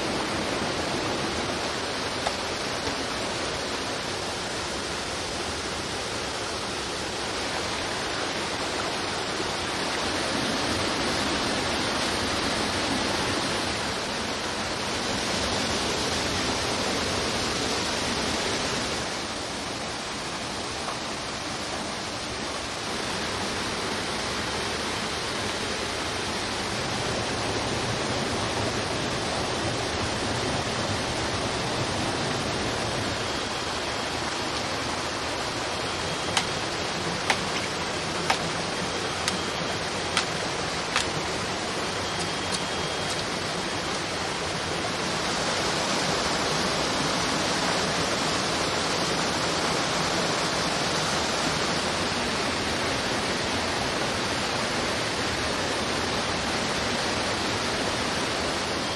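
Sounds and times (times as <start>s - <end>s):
stream and waterfall rushing: 0.0s - 58.9s.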